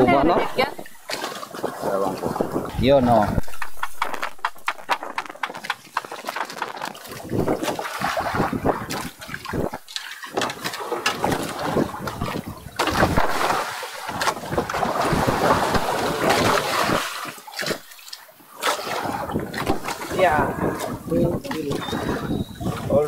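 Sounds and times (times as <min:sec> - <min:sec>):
gusty wind buffeting microphone: 0:01.5 - 0:09.8, 0:19.0 - 0:23.0.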